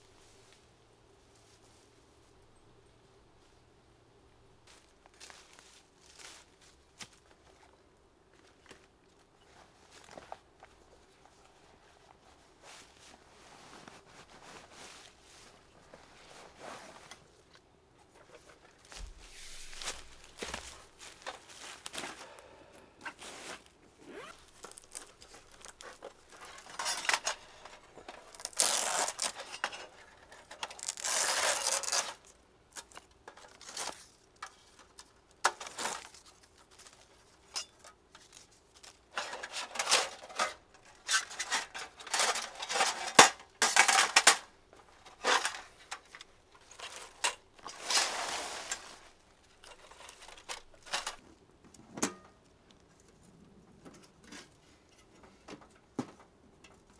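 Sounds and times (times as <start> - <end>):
fabric bag rustling: 18.6 - 22.3, 46.7 - 51.0
bag unzipping: 24.0 - 24.5
metal panels clinking and scraping: 24.6 - 32.2, 39.0 - 51.2.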